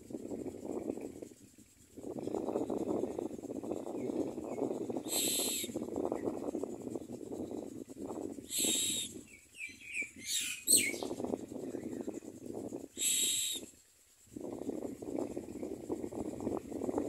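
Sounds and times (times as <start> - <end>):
quick chirps: 2.2 - 13.8.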